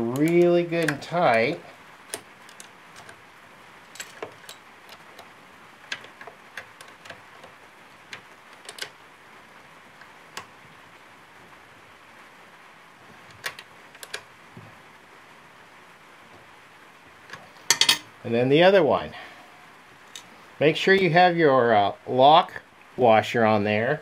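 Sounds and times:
hand tool clicking on metal bolt: 0:00.1 - 0:03.2, 0:08.1 - 0:08.9.

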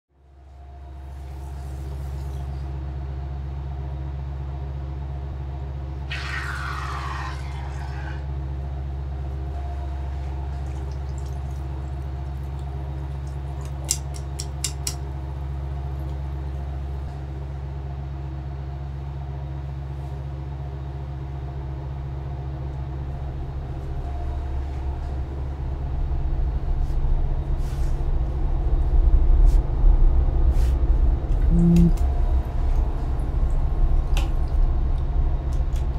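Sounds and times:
low droning soundtrack: 0:00.2 - 0:35.9
pulsing low rumble: 0:08.2 - 0:13.6, 0:20.6 - 0:35.9.

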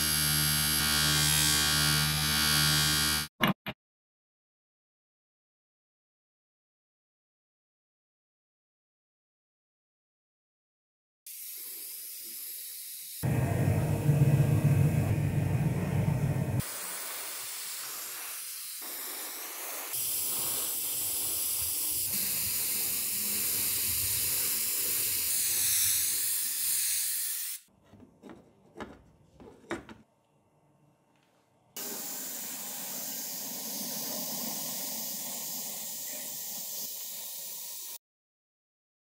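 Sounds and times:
paint spray hissing: 0:16.6 - 0:27.6, 0:31.8 - 0:38.0.

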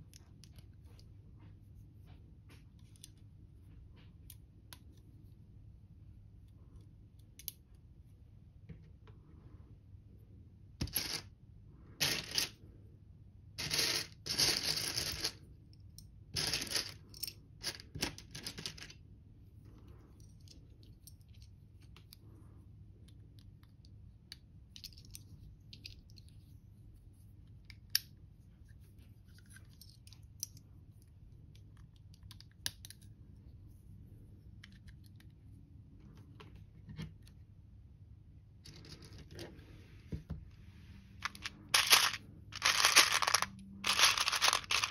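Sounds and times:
plastic bricks clattering in a tray: 0:13.6 - 0:15.4, 0:16.4 - 0:19.0, 0:41.2 - 0:44.9
plastic bricks clicking together: 0:41.2 - 0:44.9.

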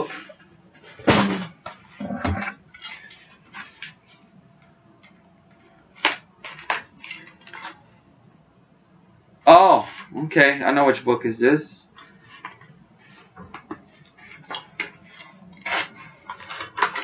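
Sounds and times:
packaging rustling: 0:05.9 - 0:07.8, 0:12.0 - 0:17.0.

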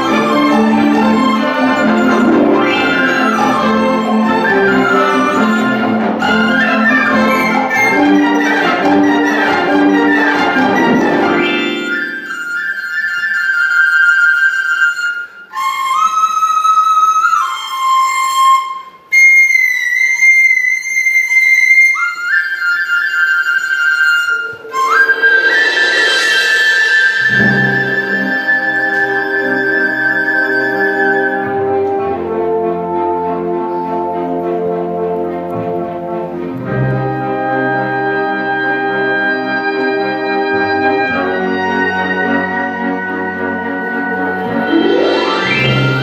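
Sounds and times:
symphony orchestra playing: 0:00.0 - 0:16.5, 0:21.1 - 0:46.0
solo flute holding high notes: 0:00.0 - 0:34.4, 0:37.0 - 0:46.0.

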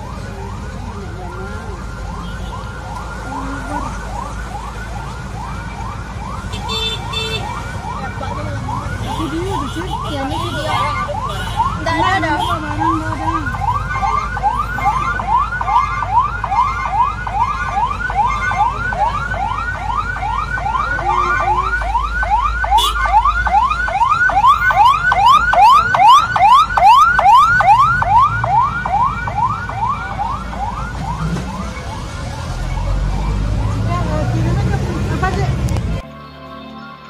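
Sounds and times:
low vehicle rumble: 0:00.0 - 0:36.1
electronic siren sweeping: 0:07.4 - 0:34.5
second steeper siren sweep: 0:07.4 - 0:35.7.

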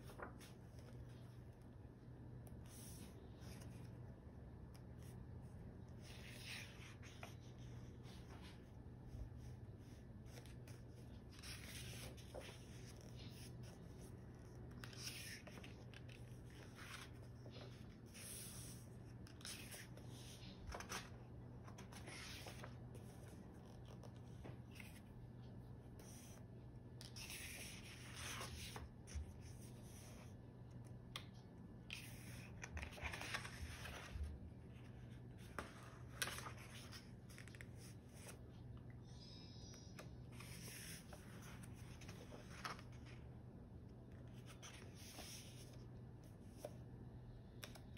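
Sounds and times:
paper pages rustling: 0:00.0 - 0:01.7, 0:05.9 - 0:25.4, 0:27.0 - 0:30.3, 0:31.8 - 0:38.6, 0:40.0 - 0:43.2.

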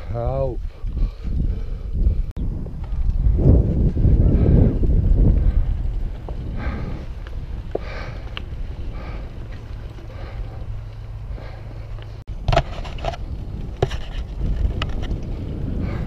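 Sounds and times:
bike tyres on gravel: 0:00.0 - 0:16.0
wind rumble on microphone: 0:00.0 - 0:16.0
bike knocks and rattles: 0:12.3 - 0:16.0.

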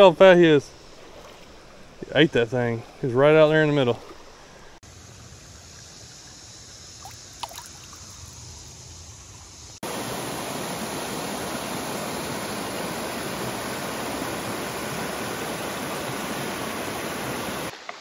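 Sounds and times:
creek water rushing over rocks: 0:00.2 - 0:04.8, 0:07.0 - 0:08.3, 0:09.8 - 0:18.0
gently moving water: 0:00.3 - 0:04.8, 0:07.0 - 0:08.6.

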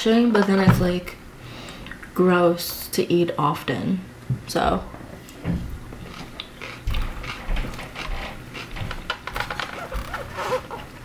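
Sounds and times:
person chewing: 0:06.0 - 0:08.8.

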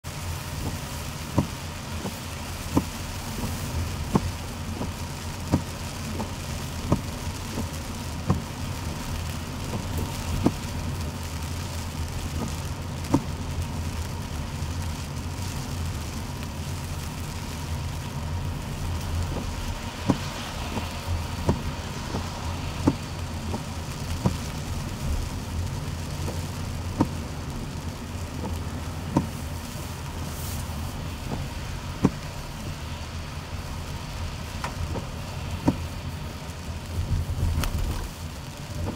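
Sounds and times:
engine and tyre rumble: 0:00.0 - 0:38.9
wet road hiss: 0:00.1 - 0:38.9.

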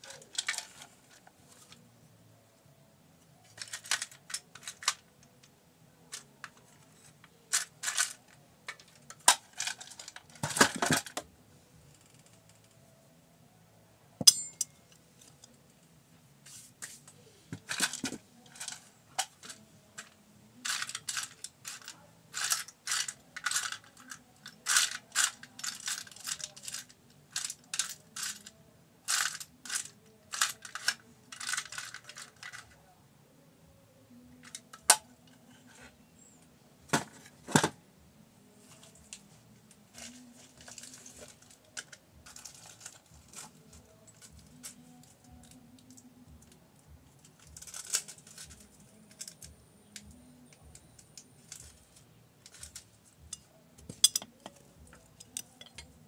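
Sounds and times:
metal tools scraping: 0:14.2 - 0:15.3, 0:52.4 - 0:56.0
metallic clicks: 0:14.2 - 0:15.6, 0:47.4 - 0:56.0.

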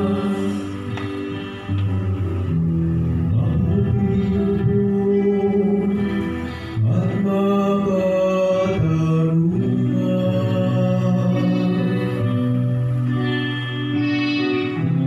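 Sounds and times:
psalm sung with accompaniment: 0:00.0 - 0:01.6, 0:03.2 - 0:15.0.

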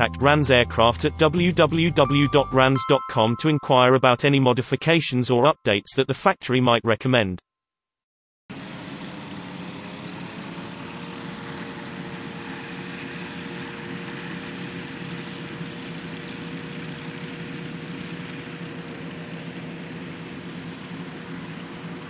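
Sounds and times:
light aircraft engine and propeller: 0:08.5 - 0:22.0.

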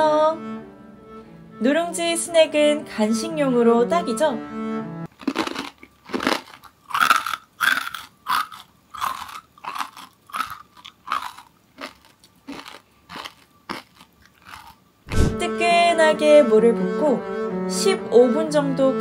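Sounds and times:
crunchy chewing: 0:05.1 - 0:14.8.

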